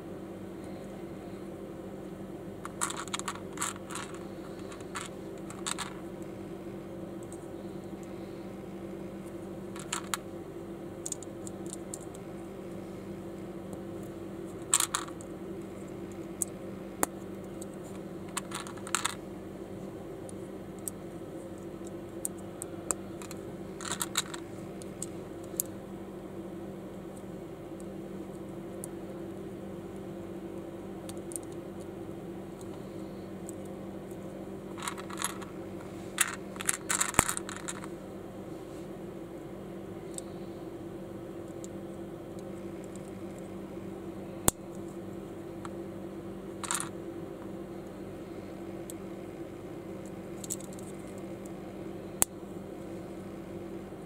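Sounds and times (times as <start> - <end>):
steady low hum: 0.0 - 54.0
plastic bricks clicking and rattling: 2.6 - 6.0, 9.8 - 10.2, 14.6 - 15.2, 18.3 - 19.2, 23.2 - 25.7, 34.8 - 35.5, 36.2 - 37.9, 46.6 - 46.9.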